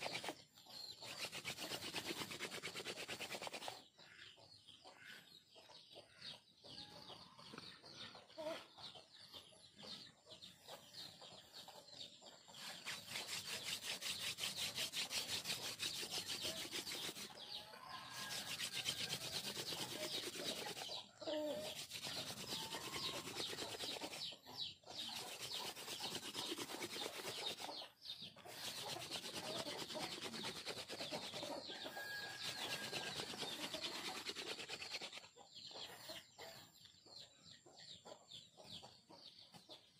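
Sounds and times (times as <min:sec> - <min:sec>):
wooden spindle grinding on board: 0:00.0 - 0:00.4, 0:01.0 - 0:03.8, 0:12.6 - 0:21.0, 0:21.6 - 0:24.3, 0:25.1 - 0:27.8, 0:28.4 - 0:35.3.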